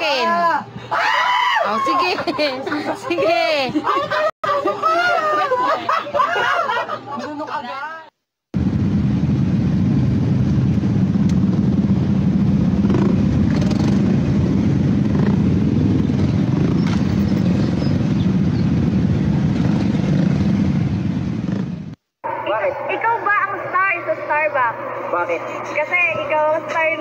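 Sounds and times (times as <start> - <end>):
motorcycle engines droning: 8.6 - 23.8.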